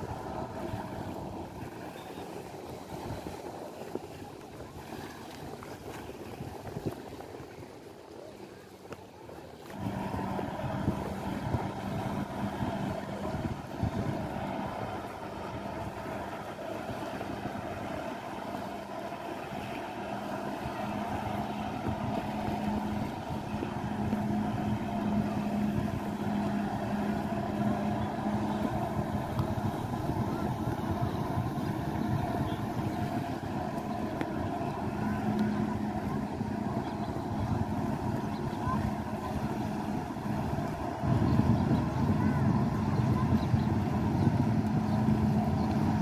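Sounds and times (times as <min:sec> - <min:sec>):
jet ski engine at high revs: 0:00.0 - 0:07.3, 0:08.4 - 0:46.0
wind: 0:00.0 - 0:46.0
water spray rushing: 0:09.7 - 0:46.0.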